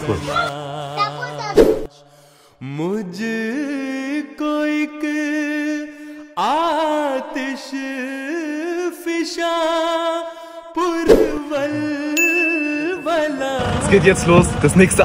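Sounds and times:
person singing unaccompanied chant: 0.0s - 2.0s, 10.8s - 14.0s.

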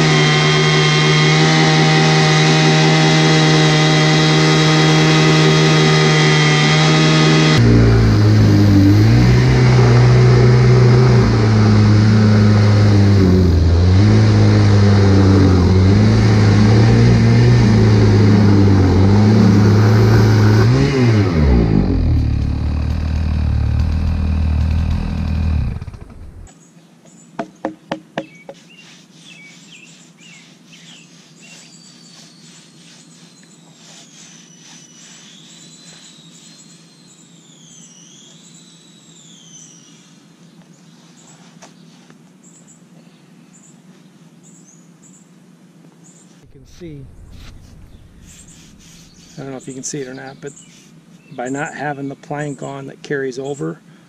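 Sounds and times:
chainsaw cutting log: 0.0s - 26.5s, 46.5s - 49.6s
bird calling in sliding notes: 28.2s - 40.2s, 46.5s - 50.9s.

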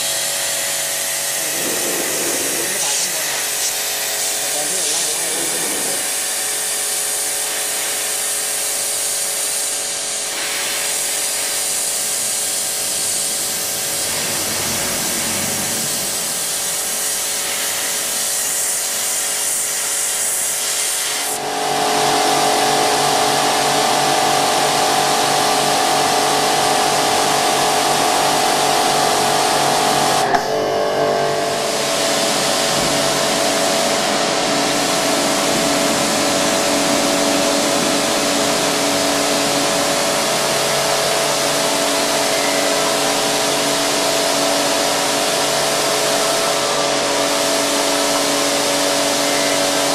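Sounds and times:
pressure washer water jet hissing: 0.0s - 30.4s, 31.6s - 49.9s
steady machine hum: 0.0s - 49.9s.

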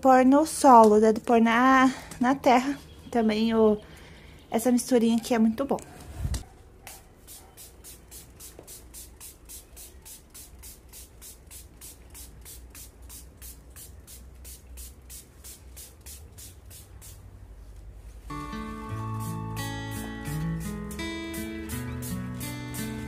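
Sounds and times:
spray bottle hissing sprays: 7.2s - 17.4s, 18.3s - 23.0s.

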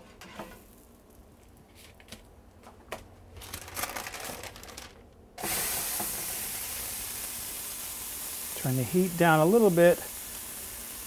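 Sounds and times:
patty sizzling in skillet: 0.3s - 1.2s, 5.4s - 11.0s.

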